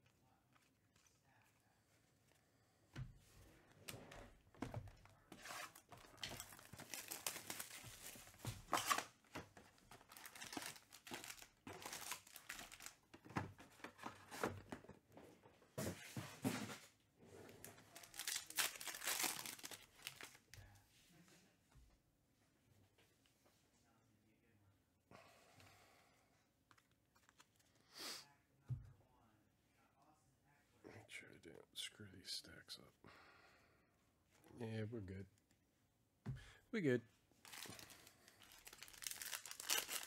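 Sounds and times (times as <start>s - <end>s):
plastic wrappers tearing and crinkling: 5.4s - 9.2s, 9.8s - 13.0s, 17.8s - 20.5s, 37.4s - 40.0s.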